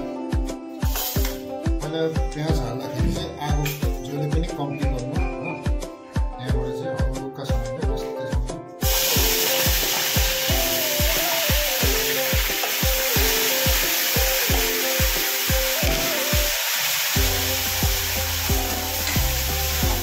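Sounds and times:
background music with a beat: 0.0 - 20.0
onion sizzling in hot oil: 0.8 - 1.4, 8.8 - 20.0.

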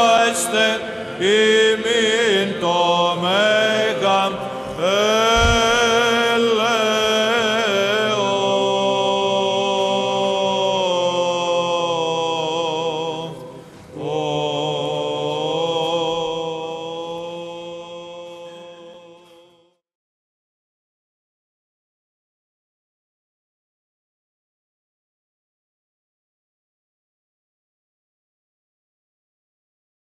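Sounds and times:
low held vocal drone: 0.0 - 19.2
ornamented chant singing: 0.0 - 19.8.

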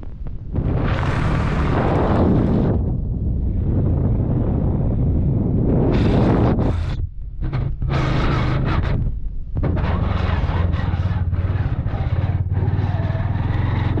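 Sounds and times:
motorcycle engine running: 0.0 - 3.0, 7.8 - 14.0
wind rushing over microphone: 0.0 - 14.0.

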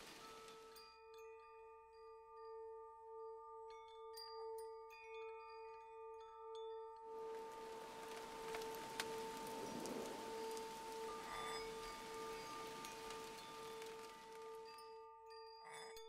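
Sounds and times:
rain-like hiss: 0.0 - 0.9, 7.2 - 14.9
wind chime tinkles: 0.0 - 16.0
pulsing ambient drone music: 7.2 - 15.9.

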